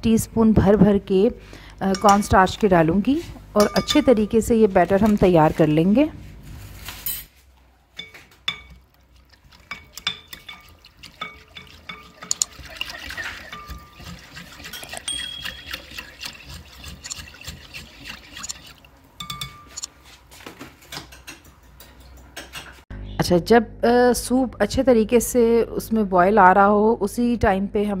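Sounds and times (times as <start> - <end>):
liquid sloshing: 8.4 - 19.6
whisk clicking against glass: 9.7 - 17.8.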